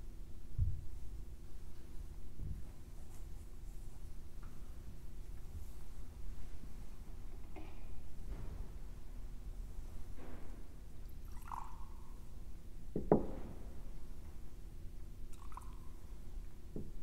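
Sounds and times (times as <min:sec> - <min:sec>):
liquid pouring into a chalice: 0:11.1 - 0:12.4, 0:15.3 - 0:16.1.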